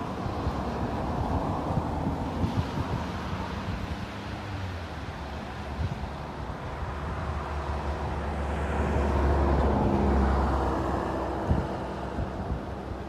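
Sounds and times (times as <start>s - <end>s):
low-flying aircraft engines: 0.0s - 13.0s
wind rumbling on microphone: 0.0s - 13.0s.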